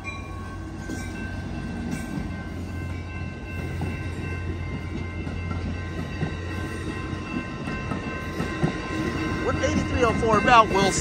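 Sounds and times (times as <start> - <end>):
diesel locomotive engine hum: 0.0 - 11.0
high ringing tone: 0.0 - 11.0
train wheel and rail rumble: 0.0 - 11.0.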